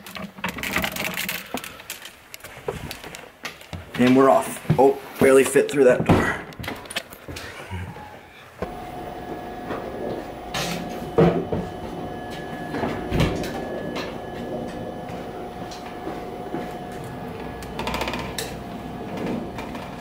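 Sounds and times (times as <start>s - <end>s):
faint steady hum: 7.7s - 20.0s
bike clicking rattle: 15.7s - 20.0s.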